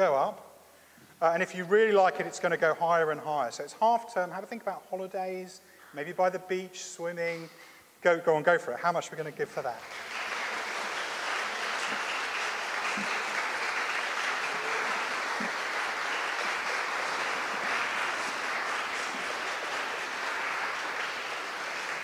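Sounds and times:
congregation clapping: 9.6 - 22.0.

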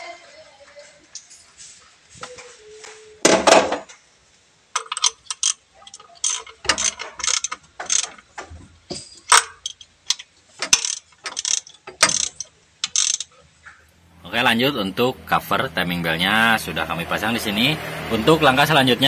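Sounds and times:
ratchet wrench clicking: 4.8 - 8.2, 9.3 - 13.3.

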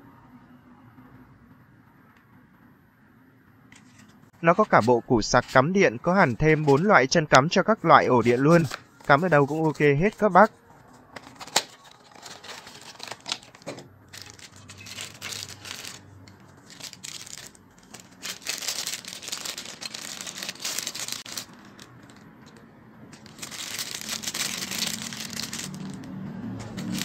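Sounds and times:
plastic bag crinkling: 11.2 - 27.0.

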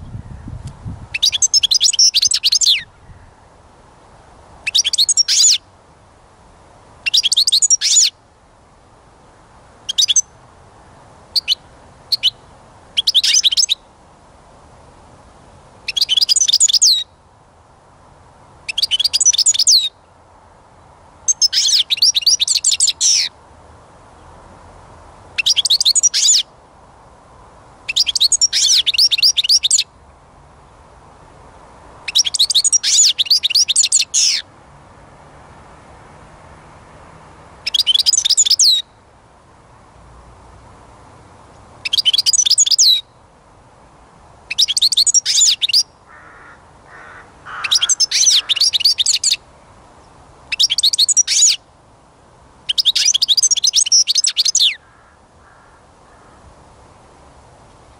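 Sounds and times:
goldfinch twittering song: 1.1 - 3.2, 4.6 - 5.6, 7.0 - 8.1, 9.9 - 10.3, 11.4 - 12.4, 13.0 - 13.8, 15.9 - 17.1, 18.7 - 20.0, 21.3 - 23.3, 25.4 - 26.4, 27.9 - 29.9, 32.1 - 34.4, 37.6 - 38.9, 41.8 - 43.2, 44.5 - 45.9, 46.9 - 49.4, 50.5 - 51.6, 52.7 - 54.8.

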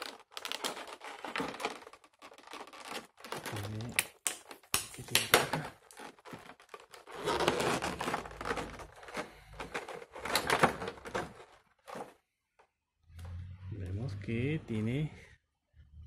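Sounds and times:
plastic packaging crackling: 0.0 - 12.2.

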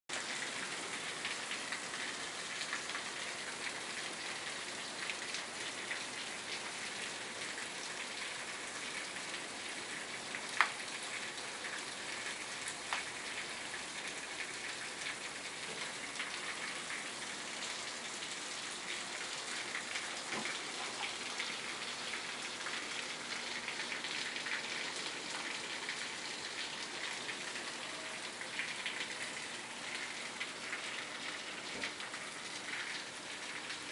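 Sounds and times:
heavy rain on pavement: 0.1 - 33.9
sharp raindrop taps: 10.5 - 10.8.

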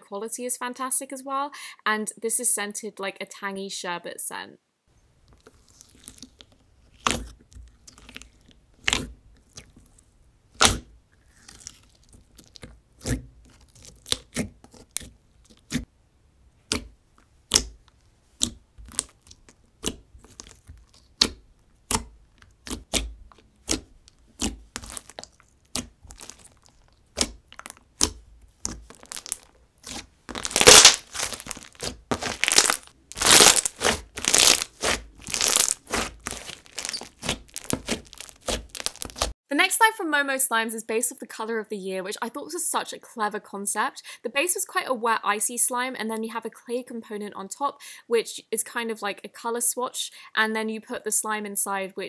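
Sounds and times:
slime crackling: 5.4 - 15.8, 16.7 - 39.4
slime sticky clicks and pops: 17.5 - 17.8, 18.4 - 23.8, 30.4 - 39.3.

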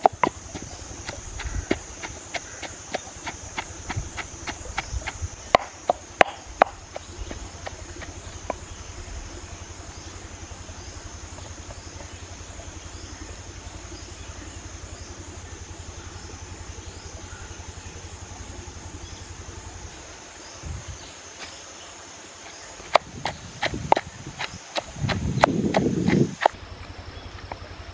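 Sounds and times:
wooden pestle knocking in mortar: 0.0 - 8.6, 22.9 - 26.6
constant high hiss: 0.0 - 27.9.

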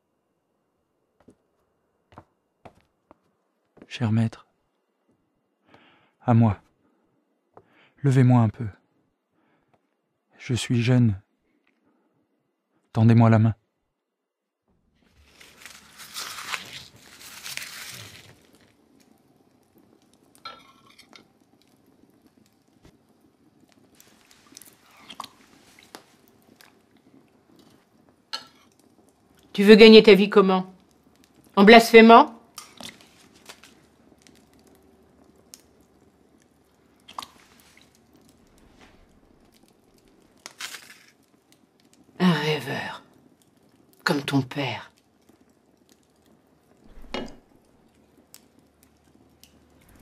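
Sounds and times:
bread crumbling crackle: 15.0 - 29.6, 30.7 - 31.6, 32.4 - 42.2, 43.0 - 44.1, 44.8 - 50.0.

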